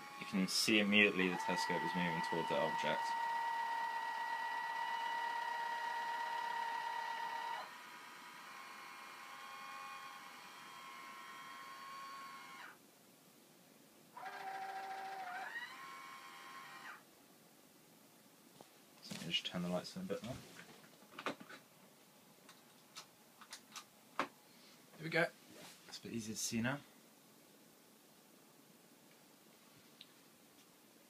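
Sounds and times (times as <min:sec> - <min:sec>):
telescope motors whining: 0:00.0 - 0:12.8, 0:14.2 - 0:17.0.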